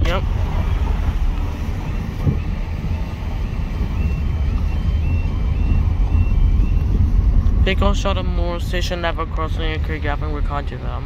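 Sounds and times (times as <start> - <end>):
car engine idling: 0.0 - 11.0
level crossing alarm: 0.2 - 7.4.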